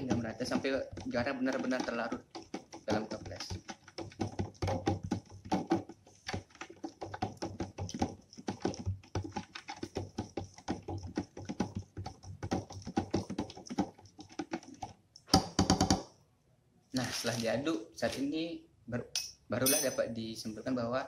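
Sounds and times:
spoon clinking in glass jar: 19.2 - 20.1.

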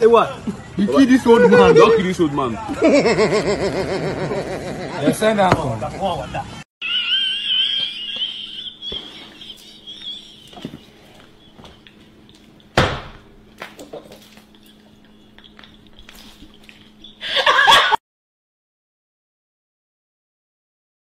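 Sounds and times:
woman laughing: 2.7 - 5.2, 6.8 - 11.7, 14.0 - 18.0
sharp smack: 12.8 - 13.2.

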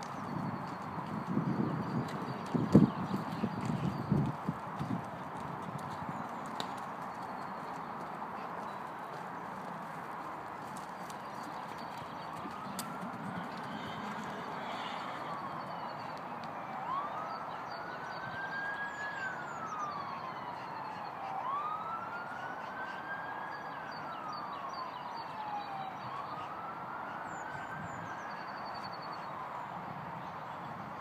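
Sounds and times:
siren wailing: 10.1 - 29.5.

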